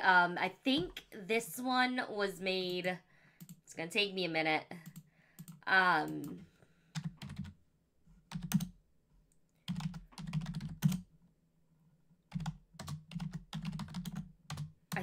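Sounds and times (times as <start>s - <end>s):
typing on keyboard: 7.0s - 7.6s, 8.3s - 8.8s, 9.6s - 11.1s, 12.3s - 15.0s.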